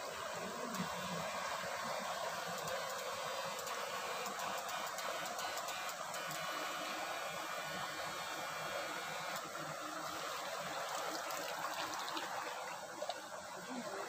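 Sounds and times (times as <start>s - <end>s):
stream flowing: 0.0s - 14.0s
faint clicks: 1.9s - 6.7s.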